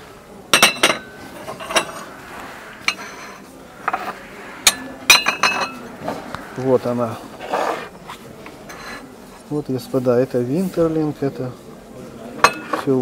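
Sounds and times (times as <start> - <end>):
porcelain tableware clinking: 0.5 - 2.0, 12.4 - 12.9.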